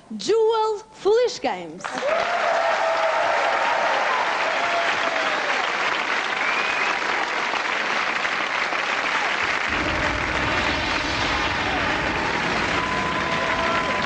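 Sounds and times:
shouted cheers: 1.8 - 7.6, 8.9 - 14.0
audience applauding: 1.8 - 14.0.

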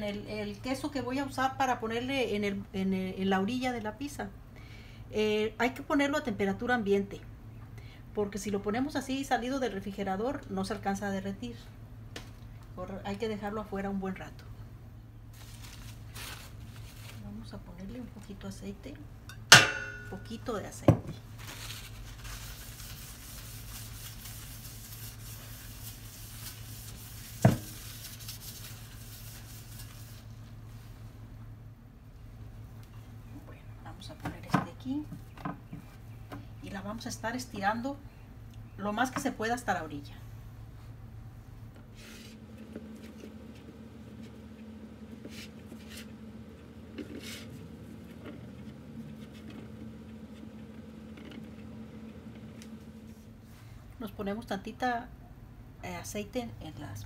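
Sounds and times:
steady low hum: 0.0 - 57.0
hands rubbing and patting dough: 21.1 - 31.0, 41.8 - 53.6
paper towel scrubbing metal pan: 21.8 - 30.3.

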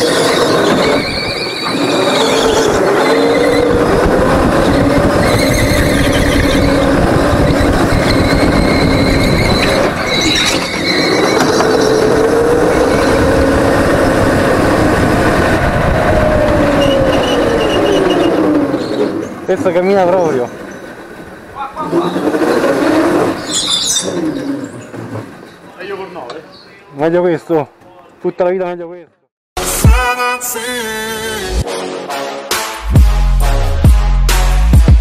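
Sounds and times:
go-kart engine running hard: 1.8 - 19.3, 21.8 - 24.7.

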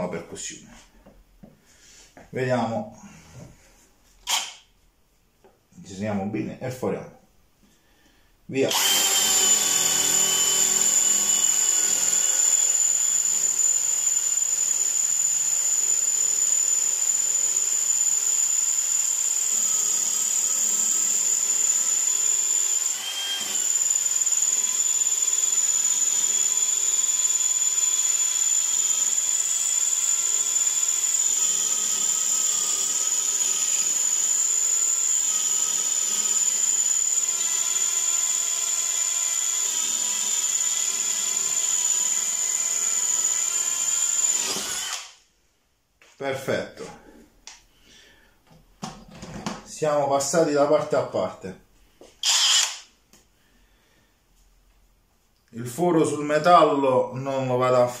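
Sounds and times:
cordless drill drilling into concrete: 4.2 - 4.6, 8.7 - 45.2, 52.2 - 52.9.

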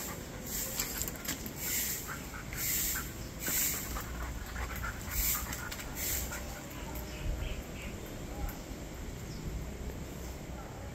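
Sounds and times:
dog panting: 0.0 - 7.2.

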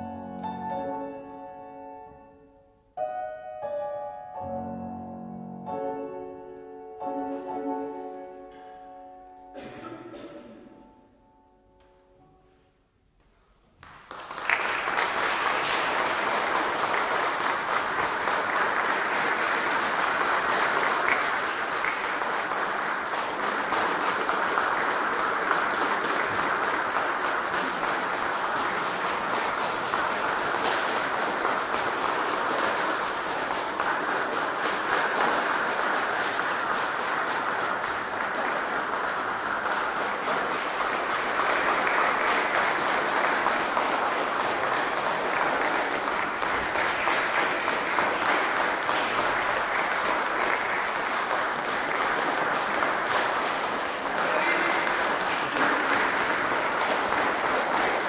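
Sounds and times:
audience applauding: 13.8 - 58.0.

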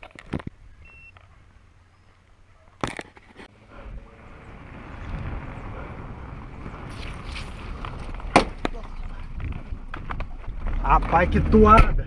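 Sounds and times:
car approaching on dirt road: 3.5 - 12.0.

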